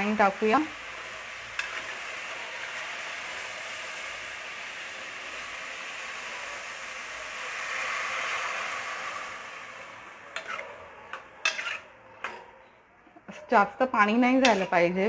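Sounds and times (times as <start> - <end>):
vegetables sizzling in oil: 0.0 - 12.1, 13.2 - 15.0
spoon scraping metal pot: 1.6 - 2.0, 10.3 - 15.0.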